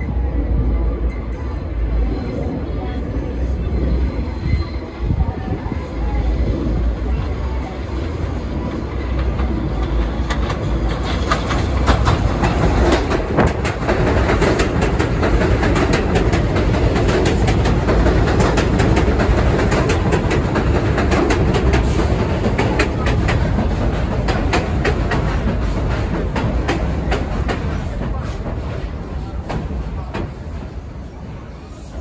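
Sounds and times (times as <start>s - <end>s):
train wheels rumbling on rail: 0.0s - 32.0s
wheels clicking over rail joints: 9.0s - 30.5s.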